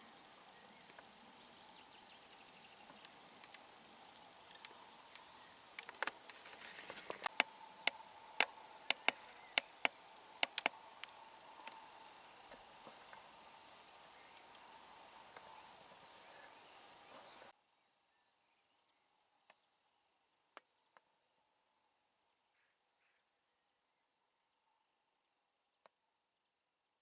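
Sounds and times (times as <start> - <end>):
sharp irregular clicks: 3.0 - 11.9.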